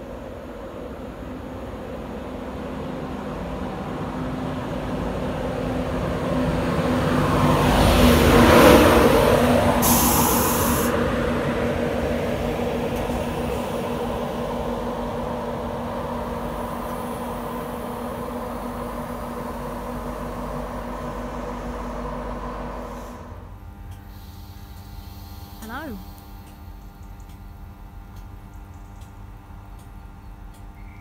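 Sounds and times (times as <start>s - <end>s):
train rumbling and humming: 0.0s - 31.0s
brief hiss: 9.8s - 11.0s.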